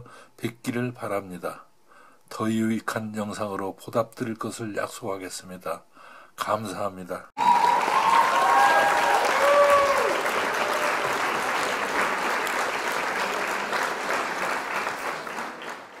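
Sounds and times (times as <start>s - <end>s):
crowd applauding: 7.4s - 16.0s
crowd cheering: 7.4s - 16.0s.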